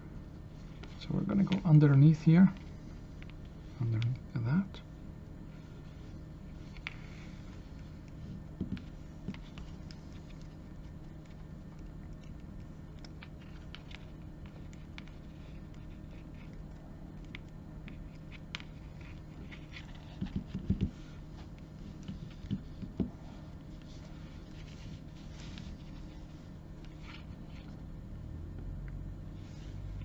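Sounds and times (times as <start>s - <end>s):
steady low hum: 0.0s - 30.0s
leather cord rustling and rubbing: 5.5s - 27.9s, 29.4s - 30.0s.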